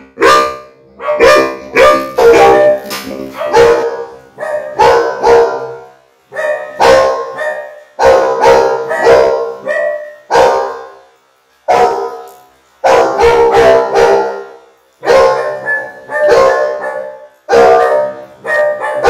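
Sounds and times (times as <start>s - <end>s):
robotic processed dog barks: 0.0s - 19.0s.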